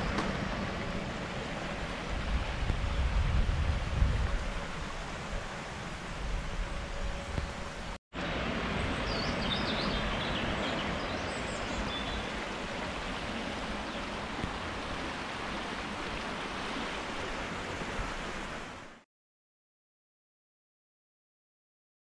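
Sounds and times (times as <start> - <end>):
stream burbling over stones: 8.3 - 19.0.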